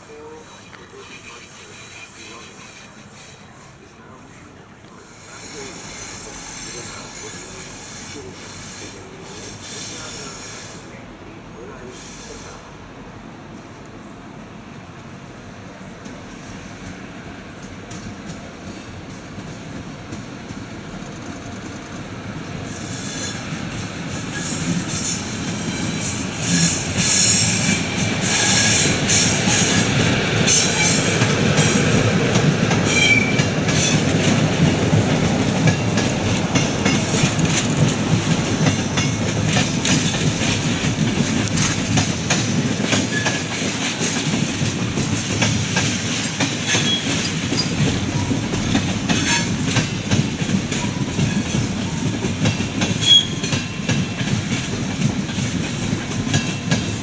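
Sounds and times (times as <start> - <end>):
high wheel squeal: 0.0 - 3.9, 5.0 - 10.9, 22.7 - 23.6, 24.3 - 31.8, 32.8 - 34.1, 43.1 - 43.5, 46.6 - 48.4, 49.1 - 49.6, 53.0 - 53.6
low train rumble: 0.0 - 57.0
train wheels clattering: 16.0 - 57.0.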